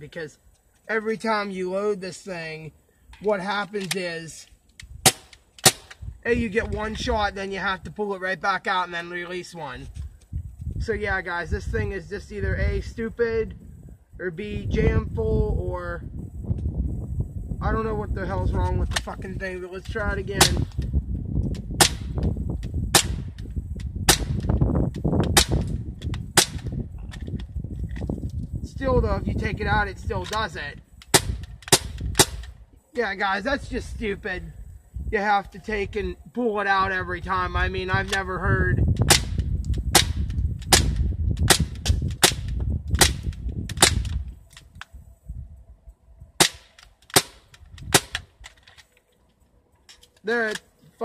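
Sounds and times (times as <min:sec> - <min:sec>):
air pistol firing sharp pops: 0:04.8 - 0:06.1, 0:20.4 - 0:20.9, 0:21.5 - 0:24.6, 0:25.2 - 0:27.3, 0:31.0 - 0:32.6, 0:39.0 - 0:44.9, 0:46.4 - 0:48.6.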